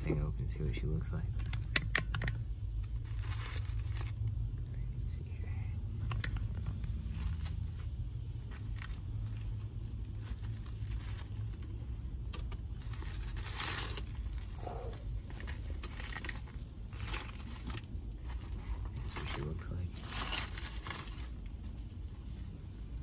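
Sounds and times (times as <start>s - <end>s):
steady low hum: 0.0s - 23.0s
paper wrapper crinkling: 2.8s - 4.3s, 6.5s - 11.8s, 12.6s - 22.6s.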